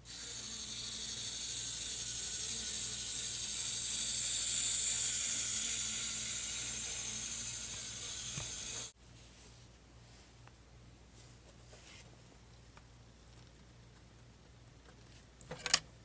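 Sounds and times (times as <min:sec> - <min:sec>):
model bus motor whirring: 0:00.0 - 0:08.9.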